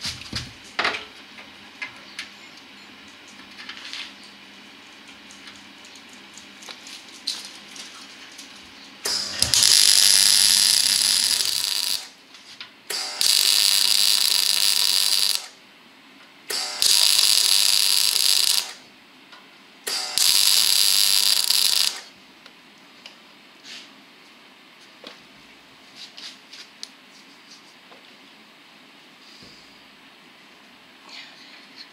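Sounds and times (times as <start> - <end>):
faint hum: 0.1 - 31.9
welder arc crackling hiss: 9.0 - 12.2, 12.9 - 15.6, 16.5 - 18.8, 19.9 - 22.1.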